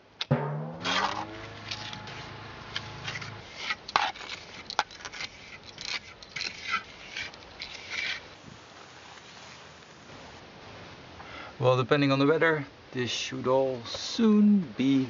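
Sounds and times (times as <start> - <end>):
trowel scraping plaster: 3.0 - 8.3.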